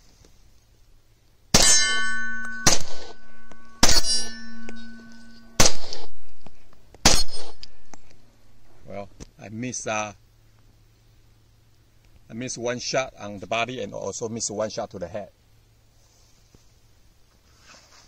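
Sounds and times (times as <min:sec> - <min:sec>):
pistol shots: 0:01.5 - 0:04.8, 0:05.4 - 0:06.4, 0:07.0 - 0:07.9
steel target ringing: 0:01.5 - 0:08.0.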